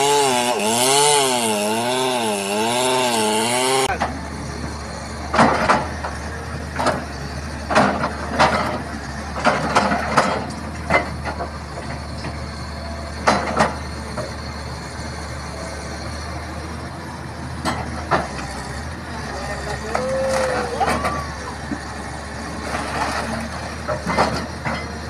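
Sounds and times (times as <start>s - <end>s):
chainsaw revving: 0.0s - 4.0s
excavator diesel engine running: 0.0s - 25.0s.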